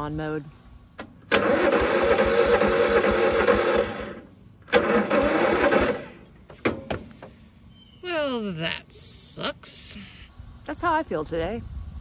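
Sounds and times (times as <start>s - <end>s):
mower engine cranking on starter: 1.0s - 7.4s.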